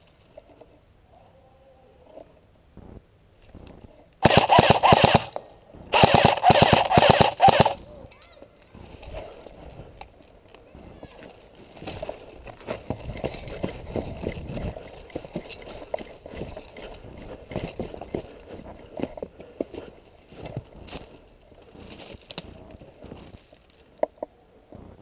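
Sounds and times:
footsteps crunching on snow: 19.7 - 23.9.

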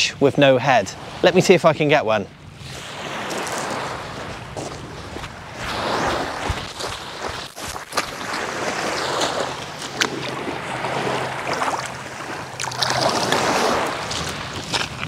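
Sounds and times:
small waves washing onto shingle: 2.6 - 15.0
footsteps crunching on stones: 3.3 - 5.4, 6.5 - 8.5, 13.3 - 15.0.

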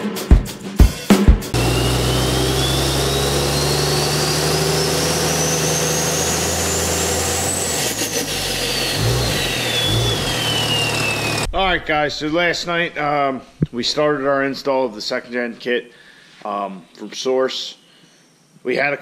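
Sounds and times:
drum hits: 0.0 - 1.6
high turbo whistle: 1.6 - 11.5
turbocharged engine running: 1.6 - 11.5.

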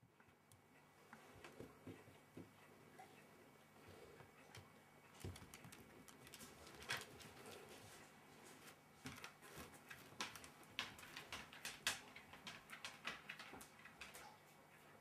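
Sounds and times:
dog claws clicking on wooden floor: 9.0 - 14.2.

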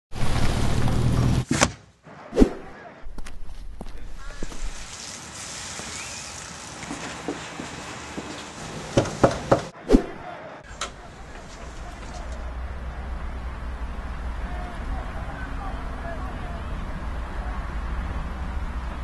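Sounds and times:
footsteps on brick pavers: 3.1 - 9.5
sharp knocks: 9.0 - 10.1
car engine rumbling: 10.7 - 19.0.

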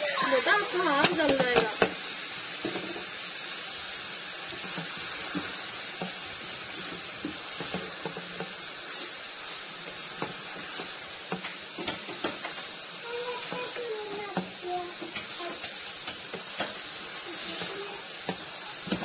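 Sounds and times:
vegetables sizzling in wok: 0.0 - 19.0.

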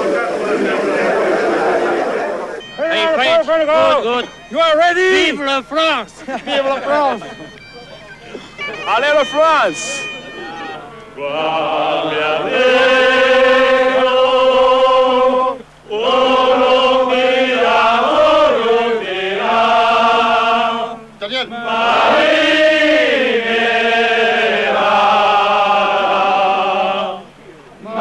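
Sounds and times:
men singing in unison: 11.2 - 28.0.

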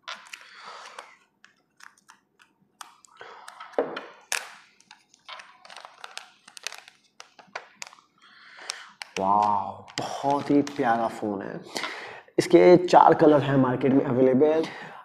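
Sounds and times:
plastic film crinkling: 0.0 - 11.0.

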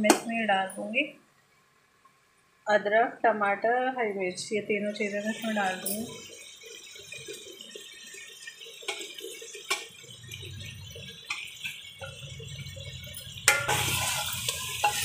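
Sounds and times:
meat sizzling in hot oil: 5.0 - 15.0.

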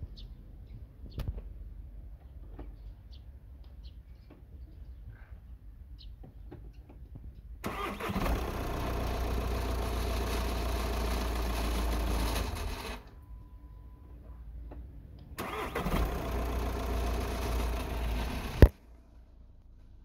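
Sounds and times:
diesel engine running: 7.6 - 13.6, 15.4 - 19.5.

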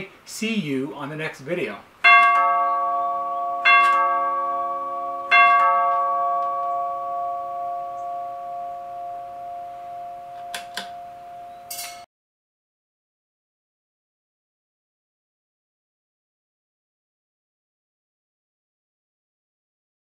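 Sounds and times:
tube door chime ringing: 2.0 - 12.1.

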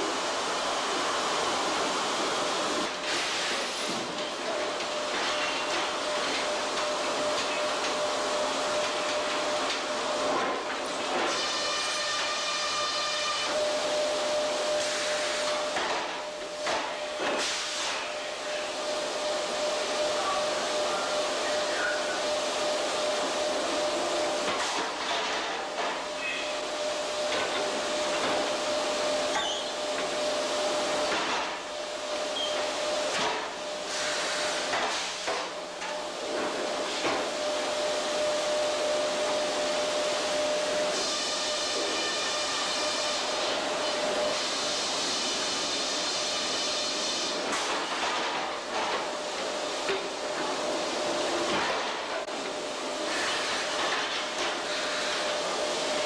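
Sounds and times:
machinery whine: 4.0 - 24.6.

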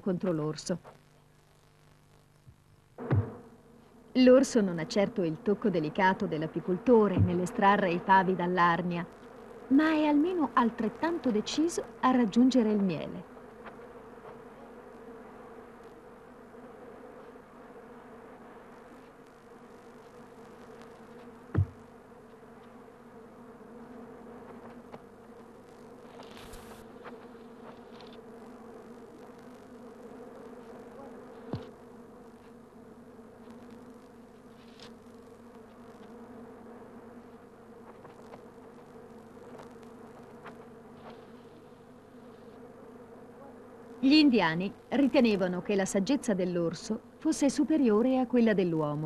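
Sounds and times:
bees humming: 0.0 - 49.0
sharp knocks: 3.0 - 3.4, 21.5 - 21.8.

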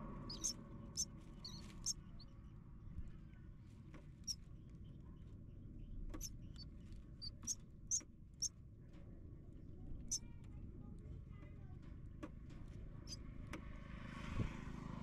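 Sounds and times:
nestlings begging peeps: 0.0 - 2.4, 5.8 - 8.5, 10.0 - 10.2
faint low rumble: 0.0 - 13.6.

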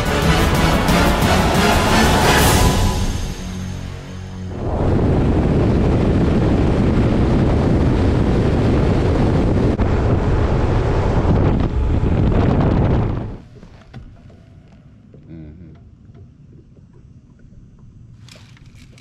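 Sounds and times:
wind buffeting microphone: 4.5 - 13.7
boat running at speed: 5.2 - 16.3.

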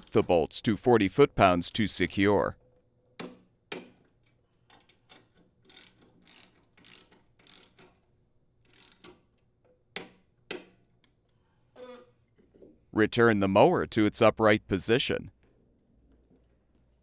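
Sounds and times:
torque wrench ratcheting: 4.8 - 9.2.

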